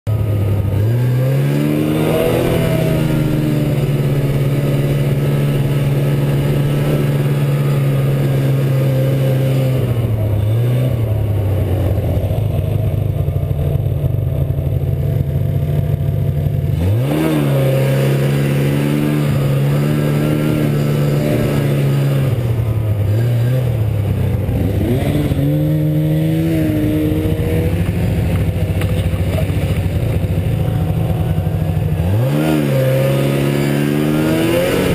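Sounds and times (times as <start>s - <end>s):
snowmobile engine revving: 0.1s - 34.9s.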